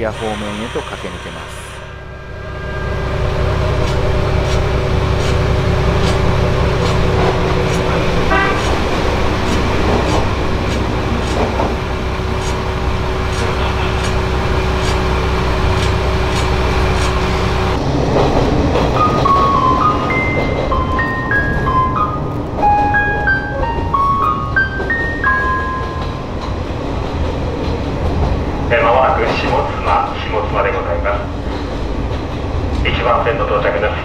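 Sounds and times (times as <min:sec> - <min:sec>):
diesel engine drone: 0:00.0 - 0:27.0
train horn toot: 0:08.2 - 0:08.9.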